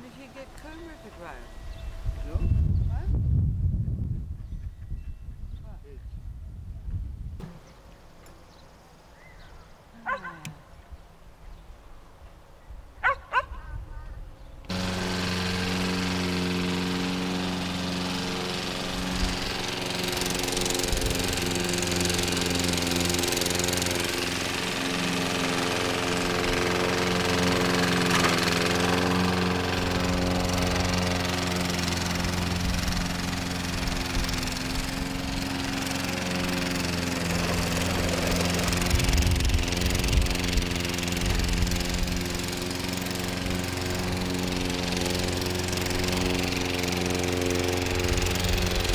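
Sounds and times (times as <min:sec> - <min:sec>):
lawn mower engine running: 0:00.0 - 0:02.4, 0:14.7 - 0:48.9.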